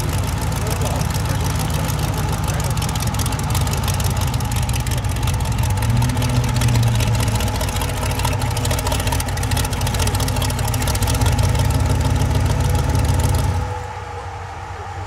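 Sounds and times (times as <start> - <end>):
car engine rumbling near idle: 0.0 - 15.0.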